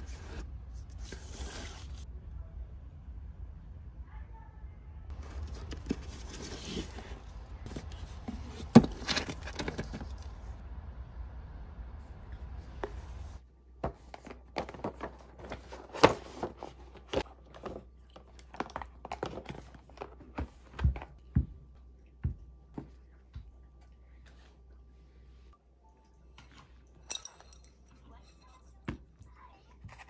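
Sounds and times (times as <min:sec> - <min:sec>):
steady low rumble: 0:10.3 - 0:13.4.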